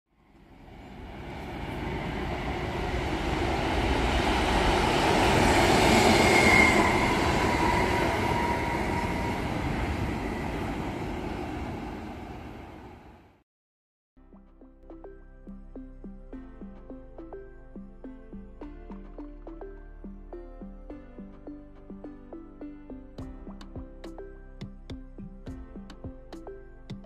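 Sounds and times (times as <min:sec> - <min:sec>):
train passing rumble: 0:00.3 - 0:13.4.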